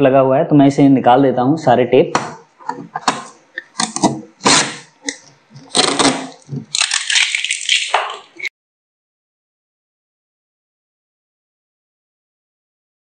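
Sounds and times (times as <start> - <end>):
packing tape ripping off plastic: 3.1 - 8.5.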